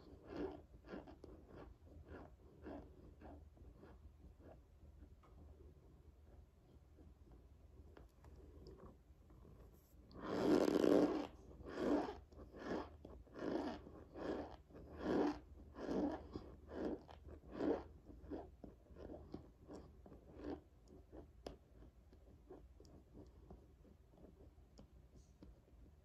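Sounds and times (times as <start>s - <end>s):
chewing crunchy food: 0.0s - 4.0s, 10.2s - 21.9s.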